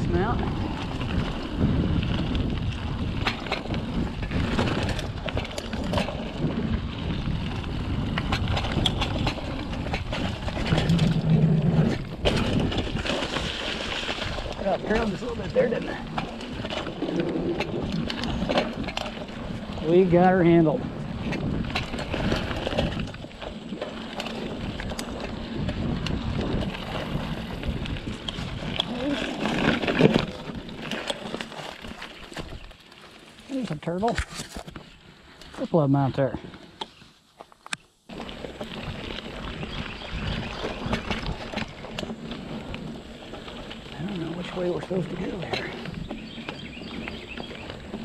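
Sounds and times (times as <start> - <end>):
wind buffeting microphone: 0.0 - 32.8, 38.1 - 48.0
bike clicking and rattling: 0.0 - 48.0
bike tyres on dirt trail: 0.0 - 48.0.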